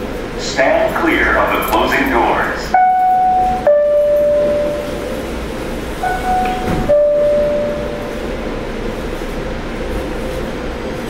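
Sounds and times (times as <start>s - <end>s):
standing train humming: 0.0s - 11.0s
descending two-note door chime: 2.8s - 5.2s, 6.0s - 8.3s.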